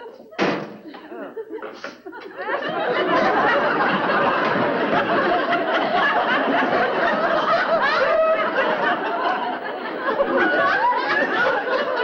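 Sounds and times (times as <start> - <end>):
studio audience laughing: 0.0 - 12.0.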